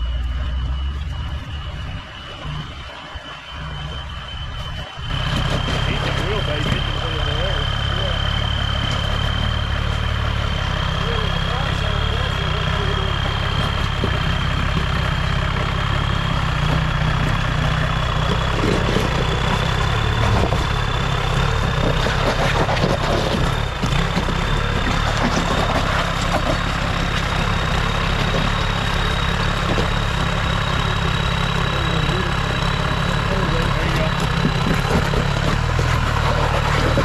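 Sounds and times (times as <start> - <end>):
thin high whine rising in pitch: 0.0 - 21.9
diesel engine running at low revs: 0.0 - 37.0.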